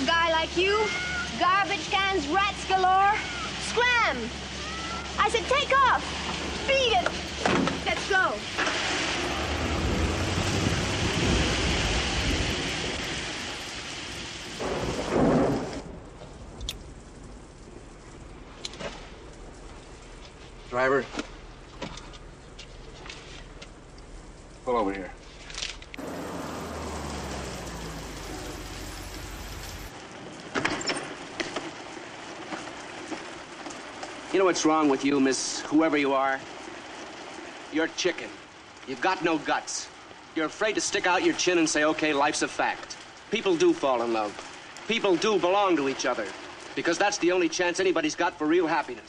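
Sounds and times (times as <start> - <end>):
heavy rain on pavement: 0.0 - 49.0
car engine humming: 8.9 - 12.5, 25.9 - 29.9.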